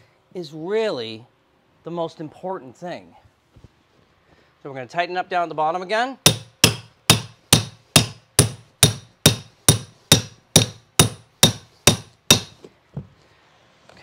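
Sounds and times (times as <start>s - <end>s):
hammer striking steel tool: 6.3s - 12.6s.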